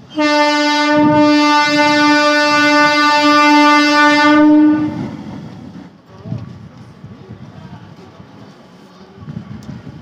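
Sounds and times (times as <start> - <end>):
train horn long blast: 0.0 - 5.2.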